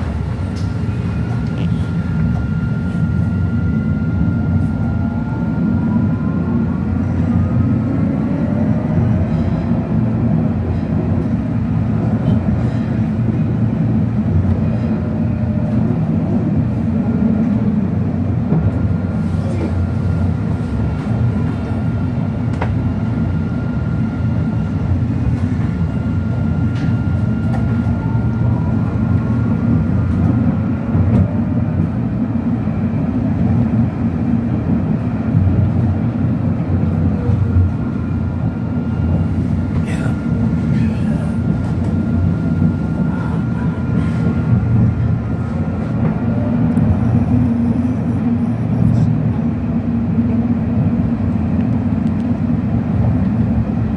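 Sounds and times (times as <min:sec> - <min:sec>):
thin steady whine: 0:00.0 - 0:11.8, 0:35.4 - 0:52.0
tram wheels rumbling on rails: 0:00.0 - 0:53.9.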